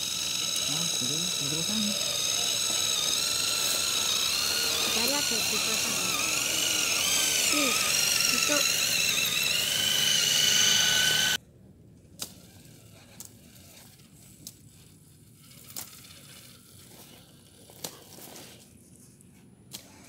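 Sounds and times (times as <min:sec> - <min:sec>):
electric motor whine: 0:00.0 - 0:11.4.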